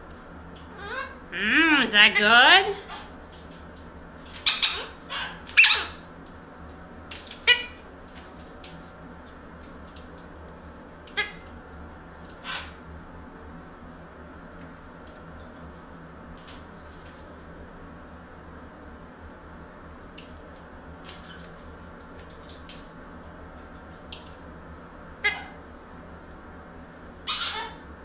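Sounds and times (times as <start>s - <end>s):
parrot squeaky chirps: 4.4s - 6.0s, 25.2s - 25.6s, 27.3s - 27.8s.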